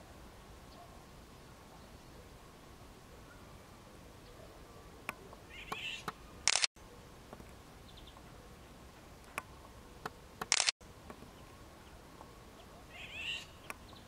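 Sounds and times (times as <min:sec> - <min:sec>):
sharp clicks: 0:05.1 - 0:06.7, 0:09.2 - 0:10.8
bird harsh rasping calls: 0:05.5 - 0:06.3, 0:12.9 - 0:13.6.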